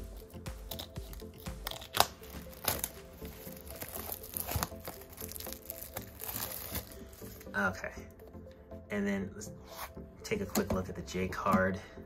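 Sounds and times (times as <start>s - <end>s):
plastic shrink wrap crinkling: 0.8s - 7.5s.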